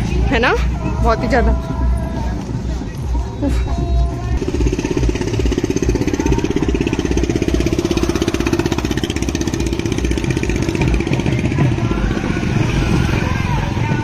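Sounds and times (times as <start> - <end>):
small engine chugging: 3.8 - 13.1.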